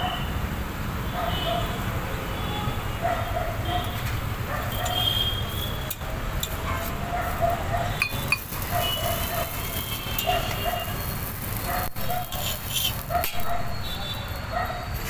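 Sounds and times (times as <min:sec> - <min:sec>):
distant voices calling: 0:07.0 - 0:15.0
metal utensils clinking: 0:08.0 - 0:13.8.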